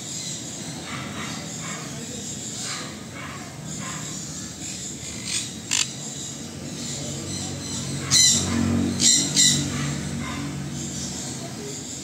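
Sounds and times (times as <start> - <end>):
parrots calling in sharp bursts: 3.7 - 6.3.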